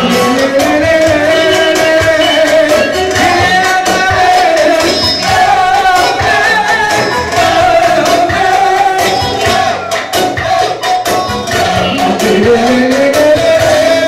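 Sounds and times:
person singing on a microphone: 0:00.0 - 0:14.0
steady drum beat: 0:00.0 - 0:14.0
wavering melody line: 0:00.6 - 0:10.2.

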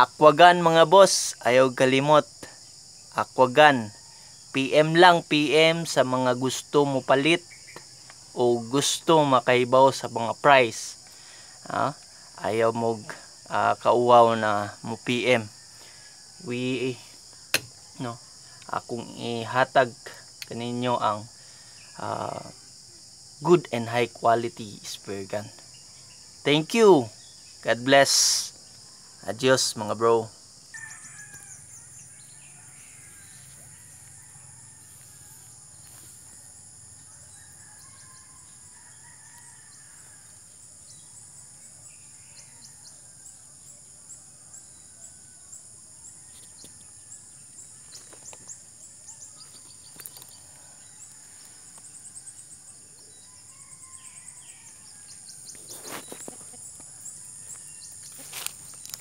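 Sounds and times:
high-pitched insect drone: 0:00.0 - 0:59.0
faint rooster crowing: 0:03.8 - 0:04.6, 0:15.4 - 0:17.1, 0:30.6 - 0:59.0.

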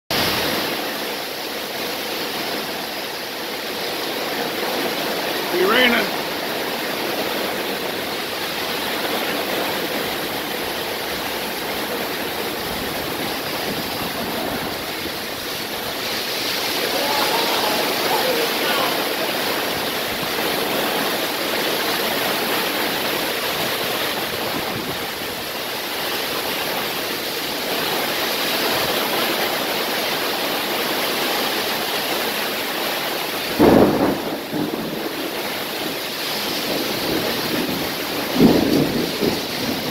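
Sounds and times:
heavy rain pouring: 0:00.1 - 0:39.9
loud thunder clap: 0:12.9 - 0:21.4, 0:33.5 - 0:35.3, 0:36.6 - 0:39.9.

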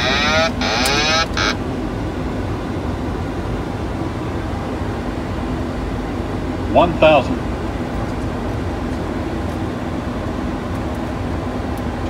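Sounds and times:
airplane cockpit noise: 0:00.0 - 0:03.1.

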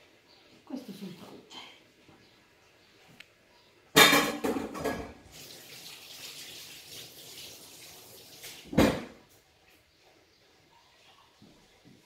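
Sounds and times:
water running: 0:04.8 - 0:10.2.

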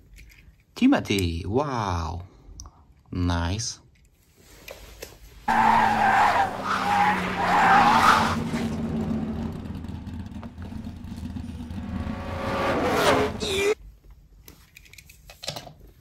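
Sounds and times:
tyres squealing: 0:05.5 - 0:08.9
race car engine hum: 0:05.5 - 0:13.8.

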